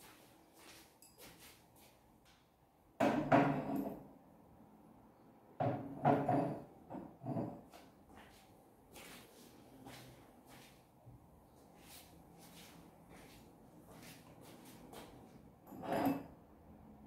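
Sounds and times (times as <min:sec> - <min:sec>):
glassware knocking and clattering: 0:03.0 - 0:04.0, 0:05.6 - 0:07.7.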